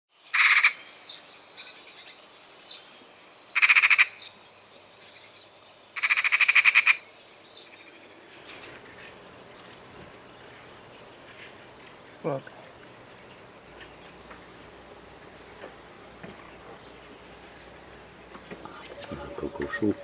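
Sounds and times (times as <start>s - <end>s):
small birds chirping: 0.2s - 20.0s
magpie chattering rattles: 6.0s - 7.0s.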